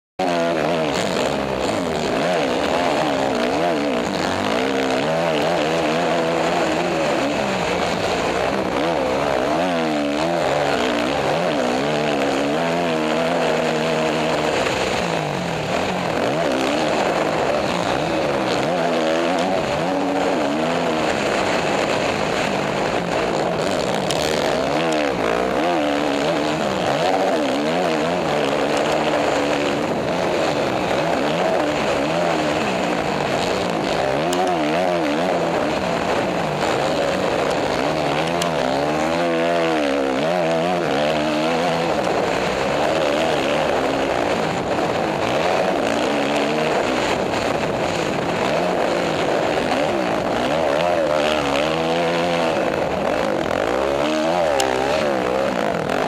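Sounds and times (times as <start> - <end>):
dirt bike engine revving: 0.2 - 56.0
rushing wind noise: 0.2 - 56.0.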